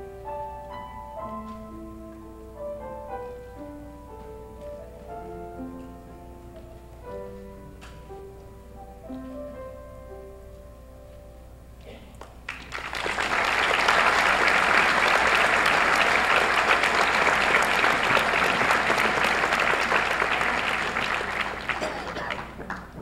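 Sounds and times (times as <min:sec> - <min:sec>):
audience applauding: 0:12.2 - 0:23.0.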